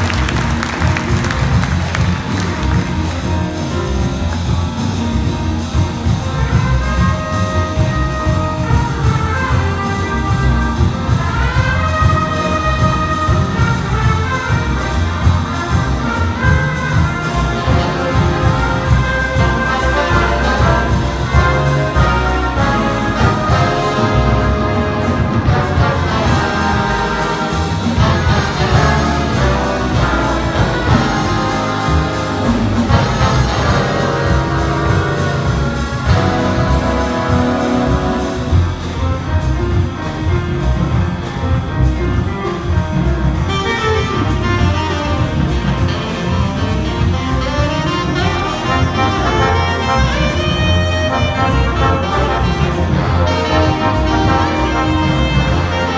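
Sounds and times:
trumpets: 0.0s - 41.6s, 42.2s - 55.9s
double bass: 0.0s - 55.9s
piano: 0.0s - 55.9s
trombones: 0.0s - 55.9s
saxophones: 43.4s - 55.9s.

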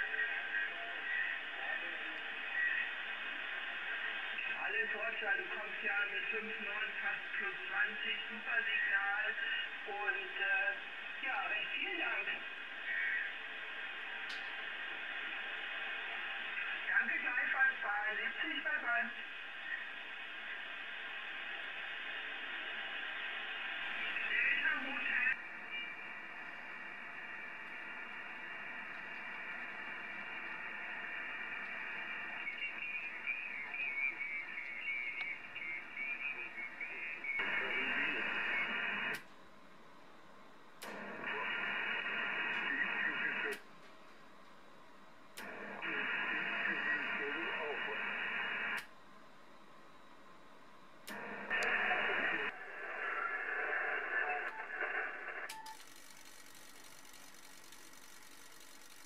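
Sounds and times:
radio band noise hiss: 0.0s - 39.3s, 40.8s - 43.7s, 45.4s - 49.0s, 51.1s - 59.0s.

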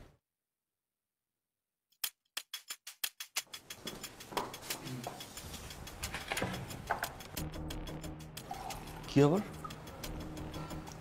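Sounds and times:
sharp fast ticks: 2.0s - 9.0s
tense music bed: 3.4s - 11.0s.

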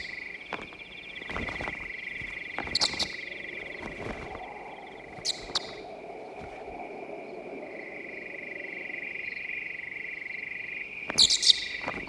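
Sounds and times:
crickets trilling: 0.0s - 12.0s
high sweeping chirps: 1.0s - 10.5s.

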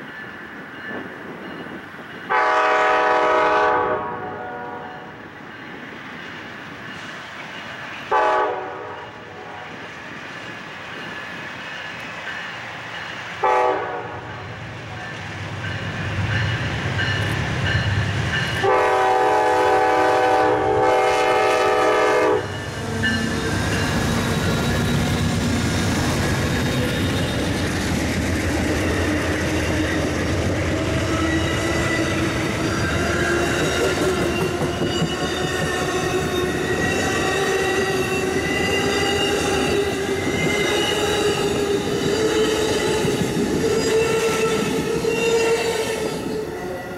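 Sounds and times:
diesel locomotive passing: 0.0s - 46.9s
train horn blasts: 2.3s - 5.1s, 8.1s - 9.8s, 13.4s - 14.4s, 18.6s - 23.2s.

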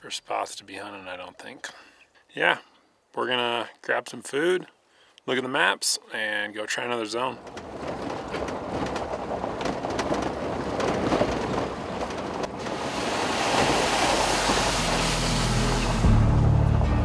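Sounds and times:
gravel crackling under tyres: 6.5s - 17.0s
tyre and road noise: 6.9s - 17.0s
music with low bass: 14.8s - 17.0s.

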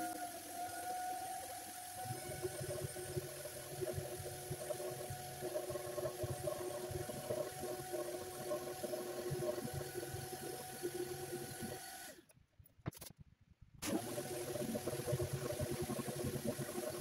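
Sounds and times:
orbital sander on wood: 0.0s - 11.8s.

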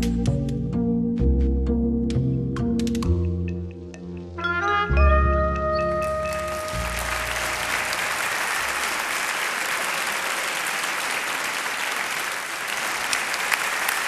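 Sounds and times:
backing music held notes: 0.0s - 8.1s
audience applauding: 5.8s - 14.0s.

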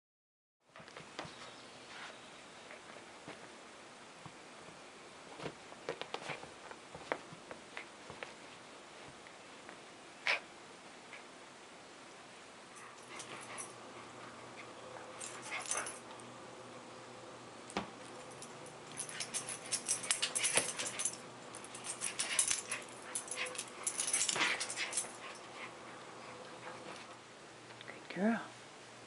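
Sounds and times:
dog play noises: 12.7s - 16.3s, 17.7s - 27.2s.

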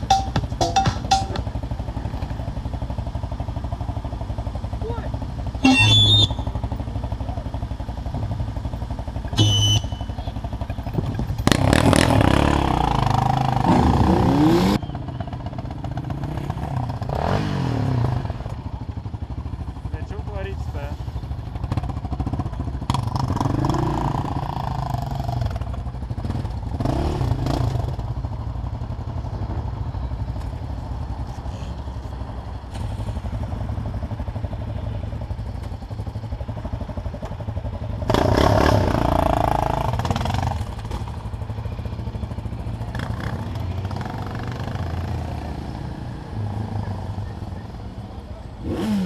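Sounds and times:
quad engine idling: 0.0s - 11.7s, 28.0s - 45.0s
other motorcycle engines: 0.0s - 49.0s.

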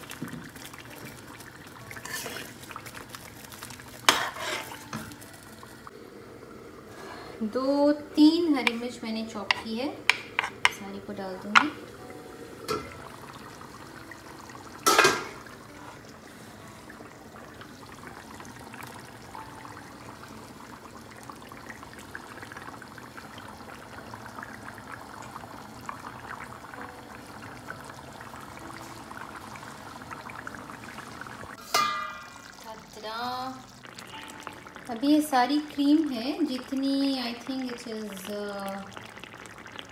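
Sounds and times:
curry bubbling in a pan: 0.0s - 39.9s.

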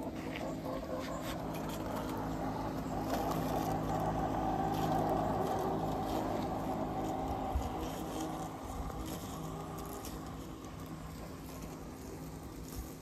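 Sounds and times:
robot lawnmower electric hum: 0.0s - 13.0s.

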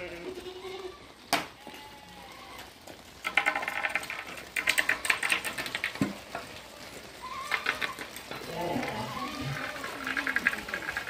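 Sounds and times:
hooves clattering on asphalt: 1.0s - 11.0s.

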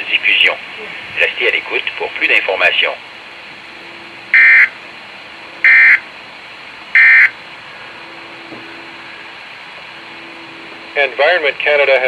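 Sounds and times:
short high beeps: 7.0s - 7.3s.

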